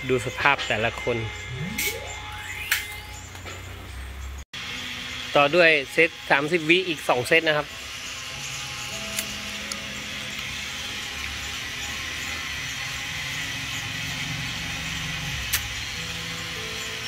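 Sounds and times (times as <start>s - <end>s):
sharp click: 15.5s - 15.7s.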